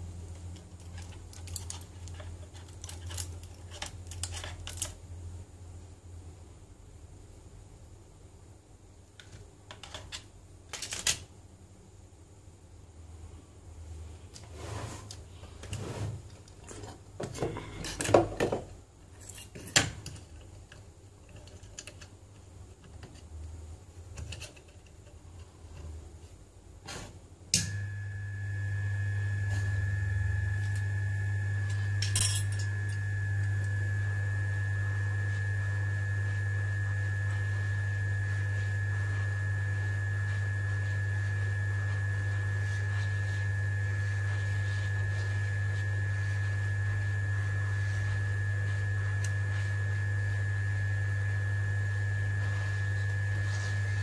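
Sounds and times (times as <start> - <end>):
hot air station humming and whining: 27.6 - 54.0.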